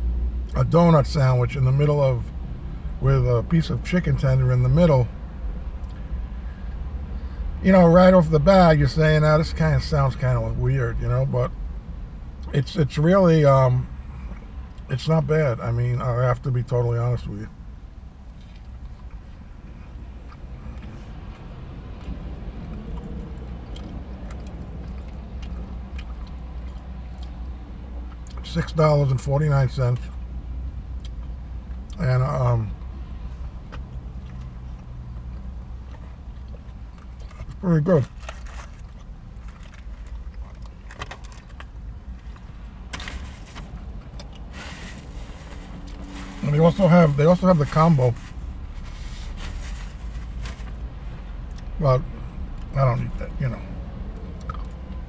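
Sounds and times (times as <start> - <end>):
low car cabin hum: 0.0 - 55.0
open-mouth chewing: 19.9 - 27.5, 43.8 - 44.6, 54.2 - 54.9
paper food wrapper rustling: 44.5 - 50.8.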